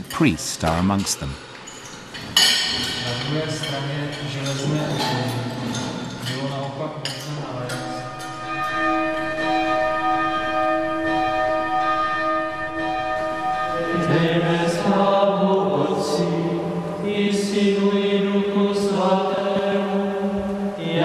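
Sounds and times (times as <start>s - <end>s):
monastery bell ringing: 0.0s - 17.0s.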